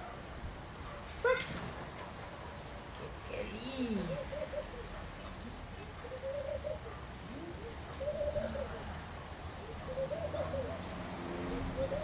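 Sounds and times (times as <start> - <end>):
dove cooing: 3.6 - 5.0, 5.9 - 9.0, 9.6 - 12.0.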